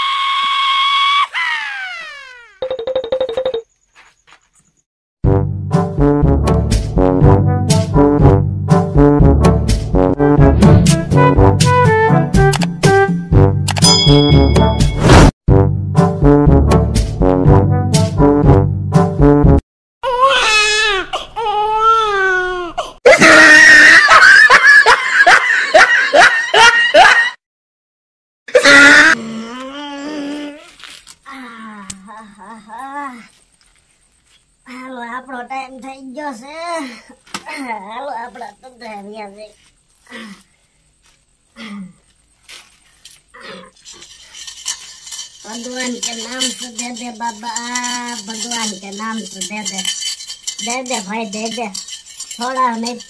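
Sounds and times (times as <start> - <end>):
person wailing and crying: 23.0 - 24.5, 28.5 - 30.7
steel plate clattering: 43.8 - 53.0.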